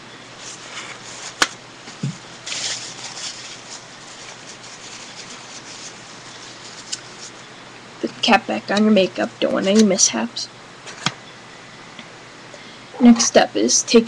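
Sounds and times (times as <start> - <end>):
toilet paper rustling: 0.4 - 7.4.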